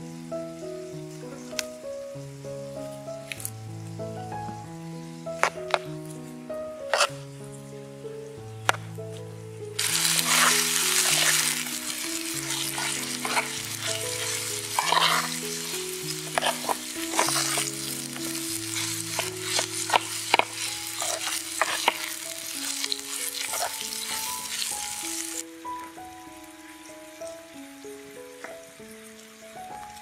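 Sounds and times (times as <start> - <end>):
soft background music: 0.0 - 30.0
metal spoon scraping a pan: 6.9 - 7.1, 9.8 - 25.4
food sizzling in a frying pan: 6.9 - 7.6, 9.7 - 30.0.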